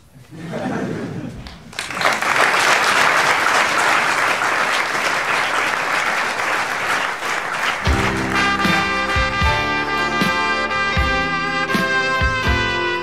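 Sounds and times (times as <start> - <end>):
audience applauding: 1.5 - 9.6.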